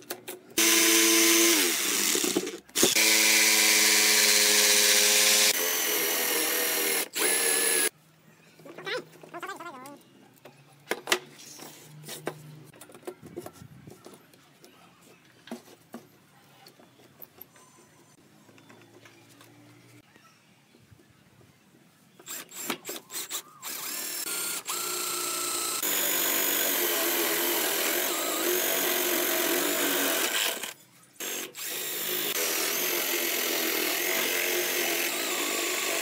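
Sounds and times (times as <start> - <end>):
rotary tool grinding wood: 0.6 - 7.9, 22.2 - 36.0.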